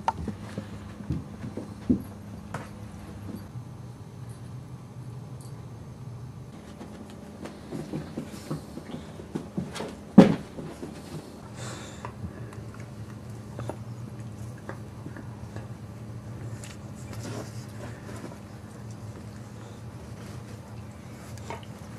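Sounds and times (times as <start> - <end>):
steady low hum: 0.0 - 21.9
dogs scuffling on carpet: 6.5 - 11.6, 16.3 - 21.9.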